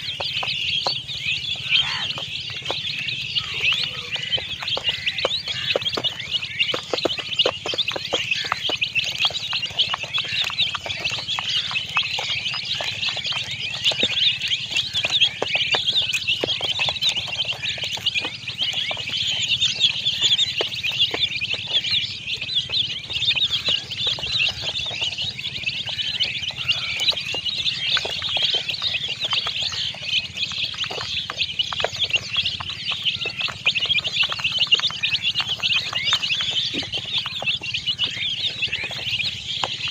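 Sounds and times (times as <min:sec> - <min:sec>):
baby chicks peeping: 0:00.0 - 0:39.9.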